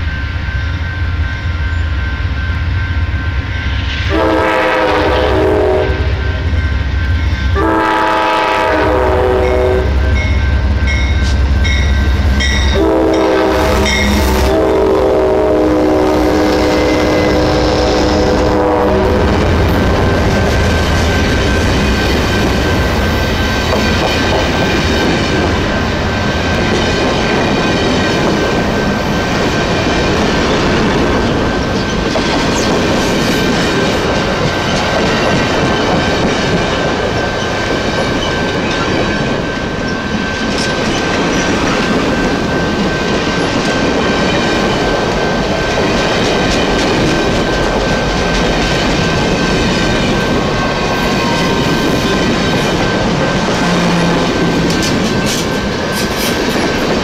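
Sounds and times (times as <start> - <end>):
thin high ringing tone: 0.0 - 4.1, 9.5 - 14.4
train wheels rumbling on rails: 0.0 - 57.0
wheels clickety-clack over joints: 26.3 - 57.0.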